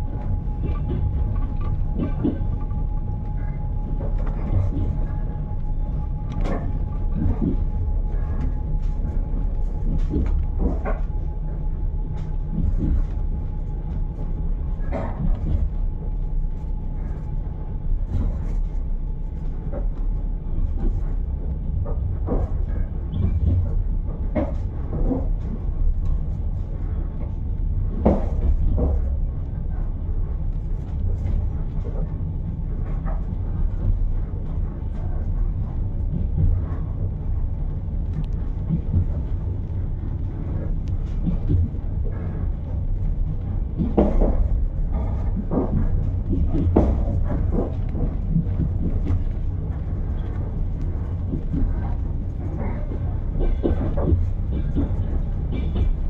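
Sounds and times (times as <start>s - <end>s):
train clicks and knocks: 0.0s - 56.0s
train rumble: 0.0s - 56.0s.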